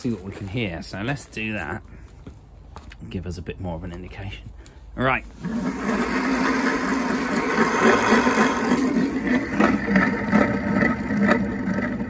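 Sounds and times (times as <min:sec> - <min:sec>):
motor bearings rough rumble: 0:05.3 - 0:12.0.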